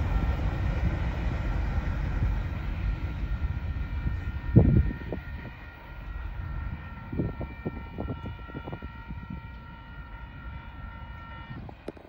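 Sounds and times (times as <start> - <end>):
low rumbling: 0.0 - 9.5
distant locomotive air horn: 0.0 - 12.0.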